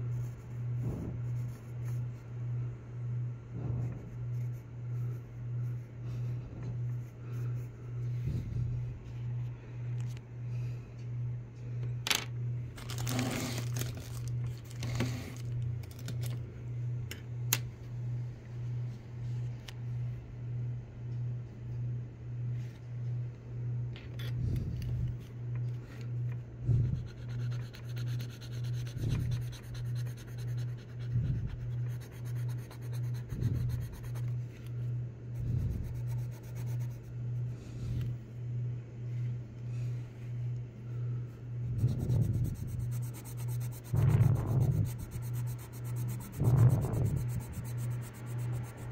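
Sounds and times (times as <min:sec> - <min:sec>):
pencil scratching on paper: 0:00.0 - 0:02.1, 0:03.8 - 0:05.9, 0:26.8 - 0:34.4, 0:35.4 - 0:37.5, 0:41.7 - 0:48.9
loud low pulsing hum: 0:00.0 - 0:48.9.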